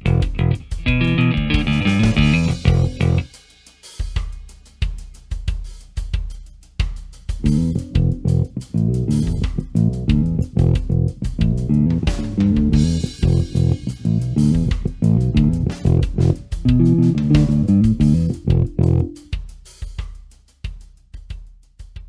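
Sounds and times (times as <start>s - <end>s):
electric bass plucked notes: 0.0s - 3.3s, 7.4s - 19.2s
drums: 0.0s - 22.0s.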